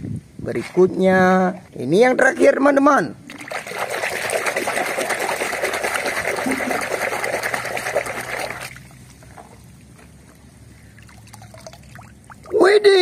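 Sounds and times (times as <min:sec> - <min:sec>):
water sloshing and splashing: 0:03.2 - 0:12.6
water trickling and dripping: 0:06.4 - 0:12.7.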